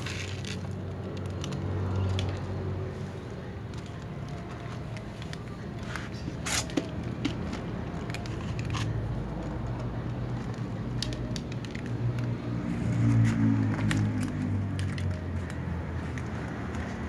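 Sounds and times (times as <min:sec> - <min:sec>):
crackly clicks: 0:00.0 - 0:02.5, 0:07.0 - 0:12.5
cats crunching dry kibble: 0:03.7 - 0:17.0.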